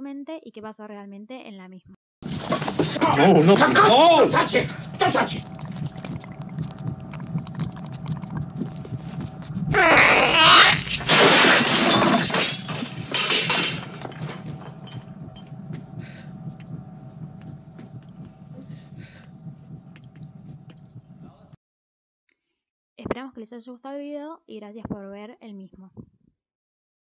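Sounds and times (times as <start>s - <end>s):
low hum: 2.2s - 21.6s
creature shriek and hiss: 9.7s - 11.0s.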